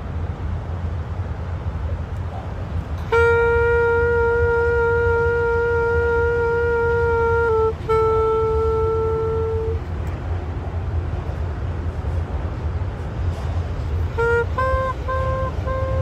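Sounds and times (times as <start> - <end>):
low traffic rumble: 0.0 - 16.0
saxophone long held note: 3.0 - 9.9, 14.1 - 16.0.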